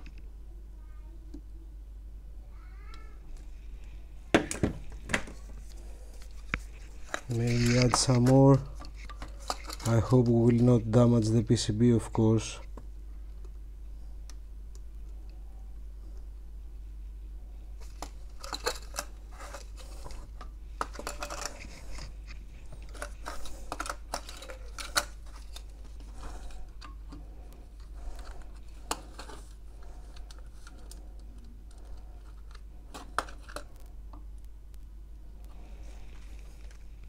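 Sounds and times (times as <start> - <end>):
steady low hum: 0.0 - 37.0
solder flux crackling: 17.9 - 37.0.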